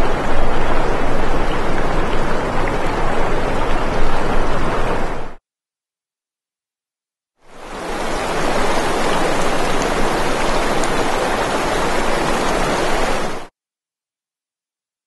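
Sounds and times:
steady rushing noise: 0:07.6 - 0:13.5.

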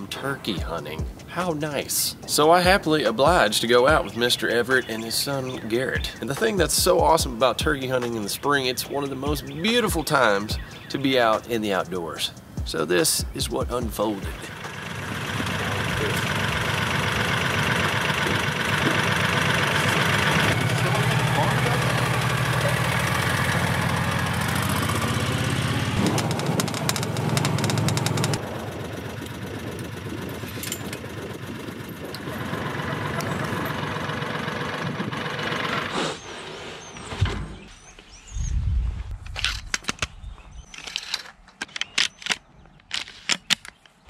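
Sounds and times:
utility vehicle engine running: 0:13.8 - 0:36.3
scattered knocks and rustles: 0:26.0 - 0:28.4.

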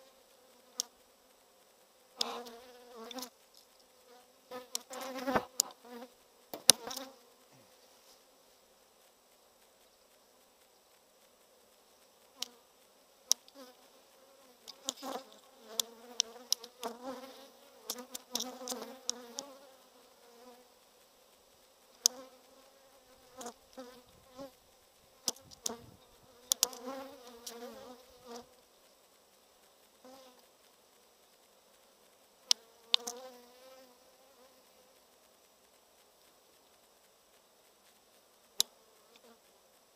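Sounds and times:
bees buzzing: 0:13.3 - 0:20.7, 0:22.0 - 0:28.6.

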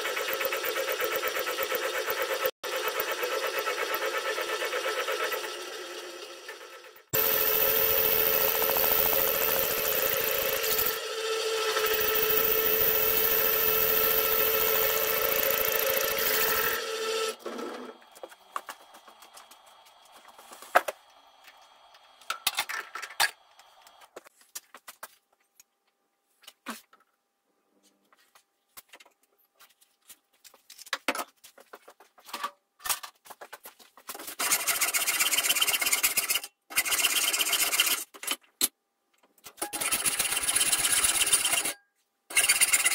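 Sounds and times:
metal lathe running: 0:00.3 - 0:17.4.

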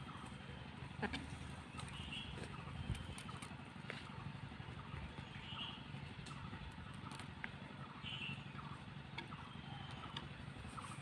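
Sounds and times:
steady low rumble: 0:00.0 - 0:11.0
hens pecking grain clicks: 0:06.0 - 0:07.8.

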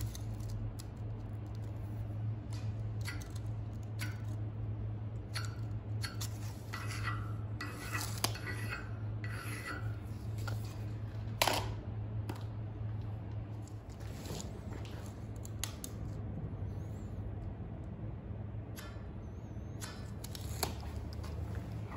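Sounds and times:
steady low hum: 0:00.0 - 0:21.9
chalk scratching on steel plate: 0:06.0 - 0:10.2.

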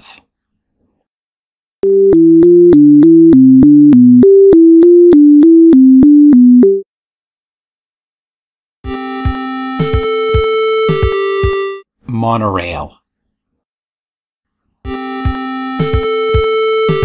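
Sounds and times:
electronic synthesizer tune: 0:01.8 - 0:06.8, 0:08.8 - 0:11.8, 0:14.9 - 0:17.0.

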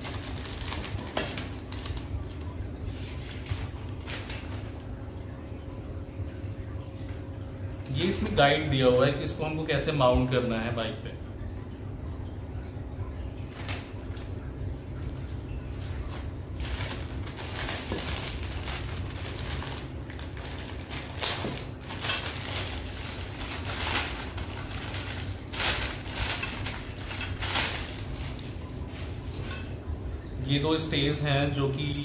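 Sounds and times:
packaging rustling and crinkling: 0:00.0 - 0:04.9, 0:16.1 - 0:29.6
steady low hum: 0:00.0 - 0:32.0.

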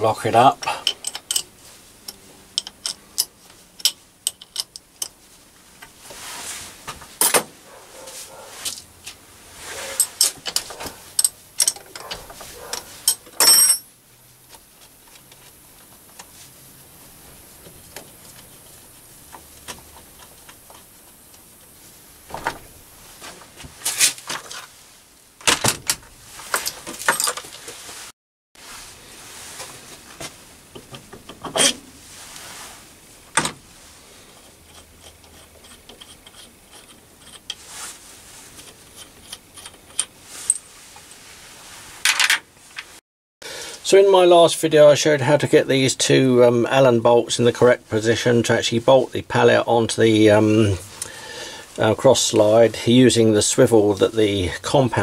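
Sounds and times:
metal tools clinking: 0:00.6 - 0:05.2, 0:09.9 - 0:13.9, 0:26.4 - 0:27.6, 0:39.0 - 0:40.7
metal parts clattering: 0:10.0 - 0:13.9, 0:25.8 - 0:27.6.

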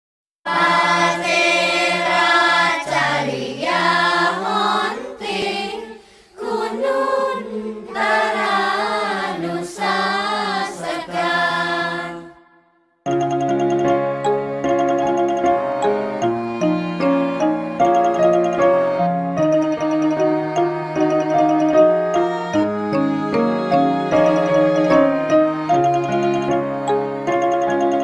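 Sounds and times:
choir singing: 0:00.5 - 0:12.8, 0:20.0 - 0:25.8.

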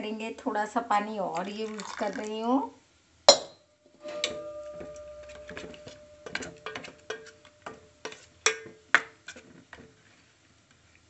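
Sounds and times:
metal spoon clinking on steel bowl: 0:03.3 - 0:08.8
steady metallic ring: 0:03.3 - 0:08.9.

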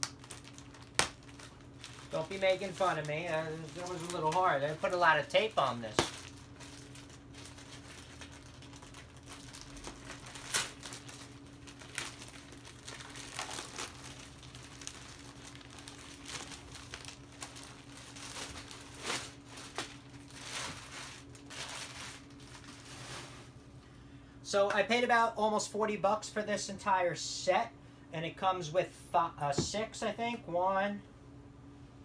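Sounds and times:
plastic packaging crinkling: 0:00.0 - 0:23.6
faint low hum: 0:00.0 - 0:32.0.

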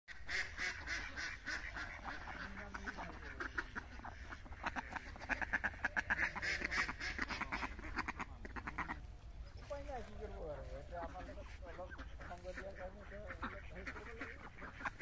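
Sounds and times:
ducks quacking: 0:00.1 - 0:15.0.

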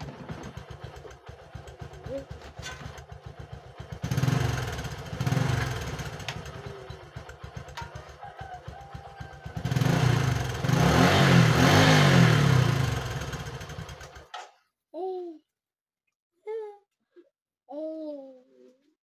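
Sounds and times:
small engine throbbing: 0:00.0 - 0:14.4.

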